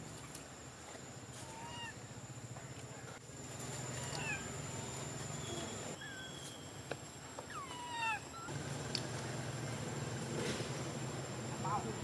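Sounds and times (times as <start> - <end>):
baby monkey crying: 7.5 - 8.5.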